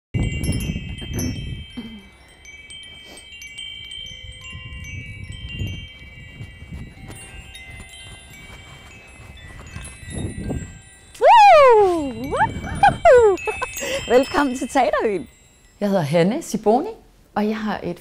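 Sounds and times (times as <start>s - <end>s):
chimes ringing: 0.2s - 16.4s.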